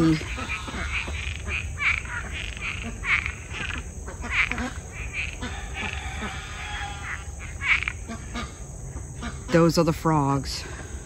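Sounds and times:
pulsed frog trill: 0:00.0 - 0:08.5
frogs calling: 0:00.0 - 0:11.0.

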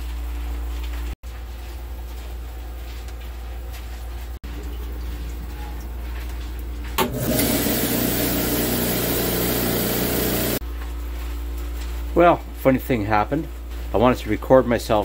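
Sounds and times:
rock saw motor and blade running: 0:07.2 - 0:10.6.

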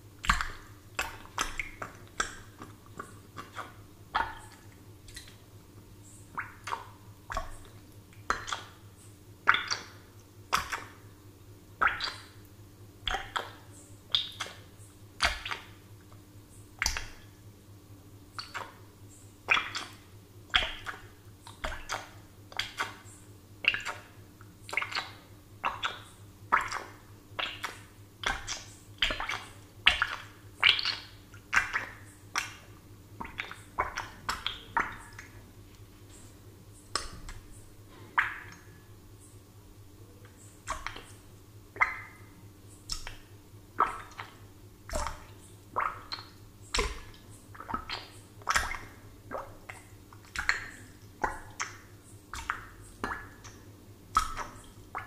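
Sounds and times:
bubbles plopping in water: 0:24.7 - 0:35.3, 0:41.8 - 0:42.2, 0:43.8 - 0:55.0.

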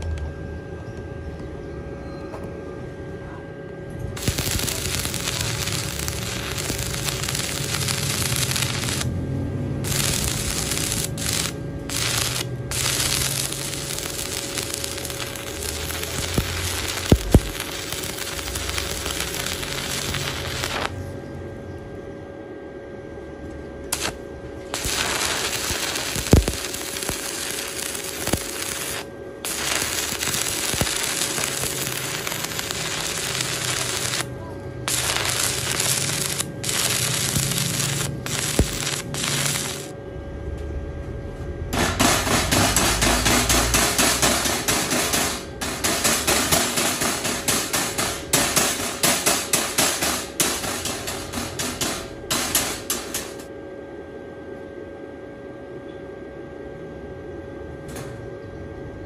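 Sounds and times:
welding arc crackling: 0:04.1 - 0:21.0, 0:23.9 - 0:40.0, 0:41.8 - 0:53.5
spatter pops: 0:09.9 - 0:20.9, 0:24.0 - 0:34.3, 0:34.9 - 0:39.9.

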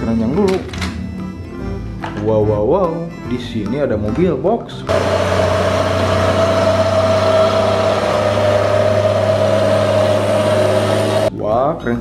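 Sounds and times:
diesel truck engine running: 0:04.9 - 0:11.3.

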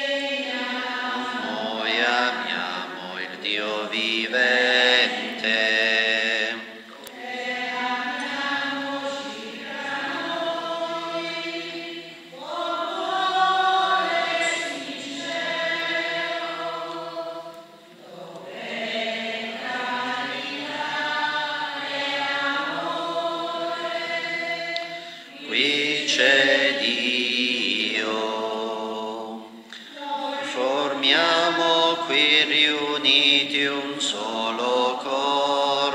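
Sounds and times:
voices singing a hymn: 0:00.0 - 0:35.9
singers breathing: 0:24.8 - 0:25.4, 0:29.6 - 0:30.0.

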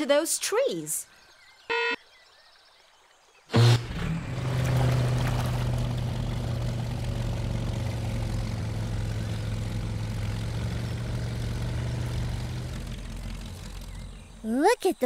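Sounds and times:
low engine drone: 0:03.6 - 0:14.4.

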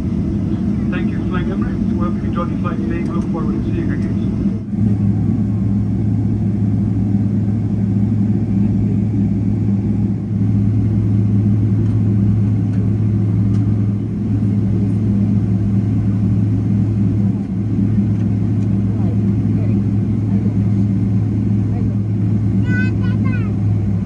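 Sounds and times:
vehicle rumble with deep hum: 0:00.0 - 0:24.0.

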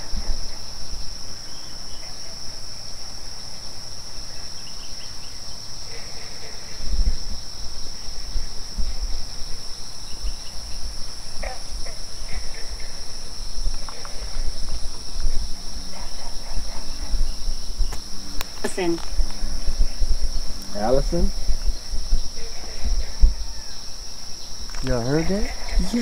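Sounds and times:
crickets trilling: 0:00.0 - 0:26.0.

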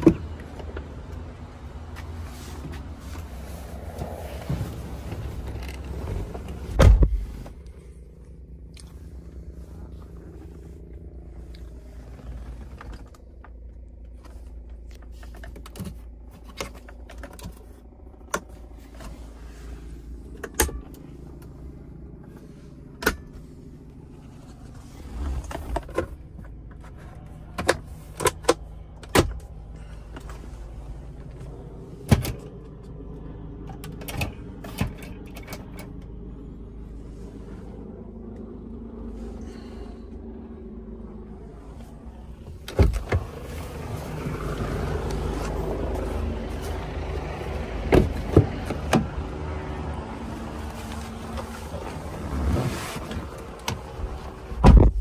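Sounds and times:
low hum in vehicle cab: 0:00.0 - 0:55.0.

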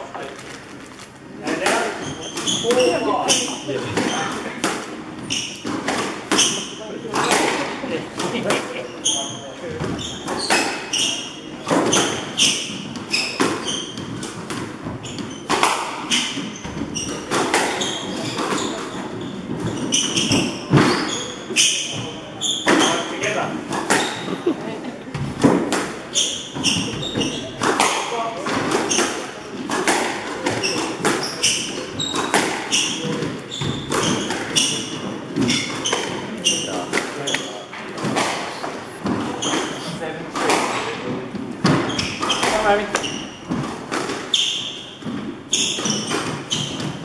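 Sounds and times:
shoes squeaking on wooden floor: 0:00.0 - 0:47.0
squash ball strikes: 0:11.6 - 0:24.4, 0:25.1 - 0:47.0
squash ball smacks: 0:15.5 - 0:18.6.

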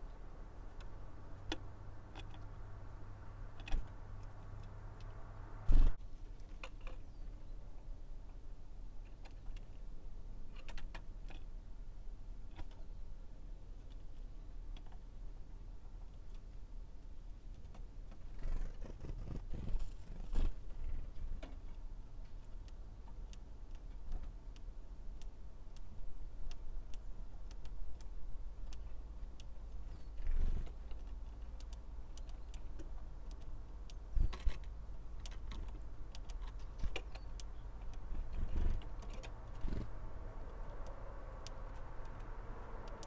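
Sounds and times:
low outdoor rumble: 0:00.0 - 0:09.1
beaks and claws tapping: 0:17.5 - 0:43.0.

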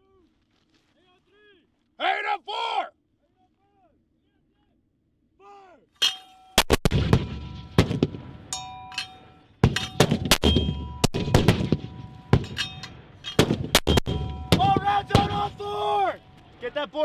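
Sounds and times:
metallic ringing from tubes: 0:06.0 - 0:06.6, 0:08.5 - 0:11.0
mortars firing: 0:06.0 - 0:16.4.

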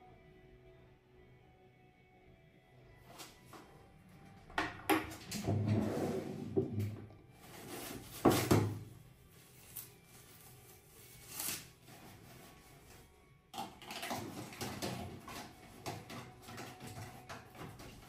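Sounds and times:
small knocks and clatter: 0:13.6 - 0:18.0.

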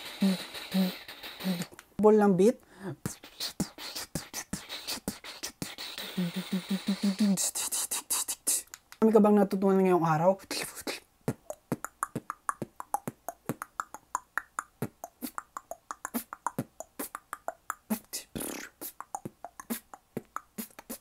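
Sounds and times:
breathy hiss: 0:00.0 - 0:01.7
beatboxing: 0:00.0 - 0:01.8, 0:02.9 - 0:09.1, 0:10.4 - 0:21.0.

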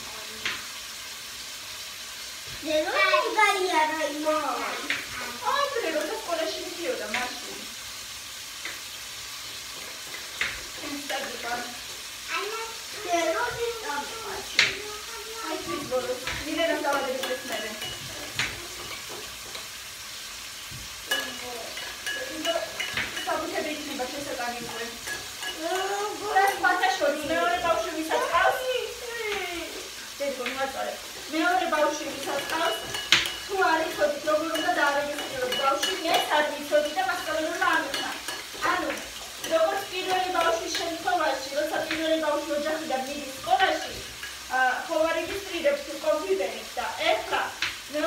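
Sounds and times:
steady hiss: 0:00.0 - 0:48.0
woman talking: 0:02.8 - 0:07.7, 0:10.8 - 0:11.8, 0:15.5 - 0:18.4, 0:21.1 - 0:48.0.

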